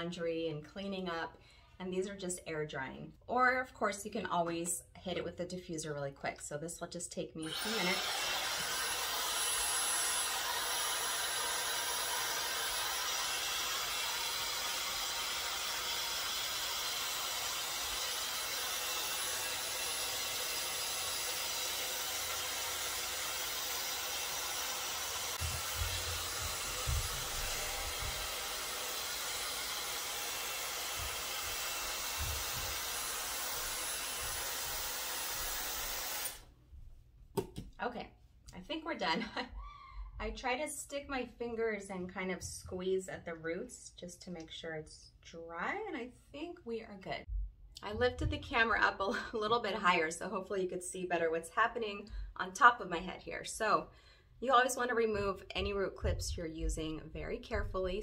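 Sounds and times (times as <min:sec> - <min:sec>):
hair dryer blowing: 0:07.4 - 0:36.5
low thumps: 0:25.4 - 0:28.2.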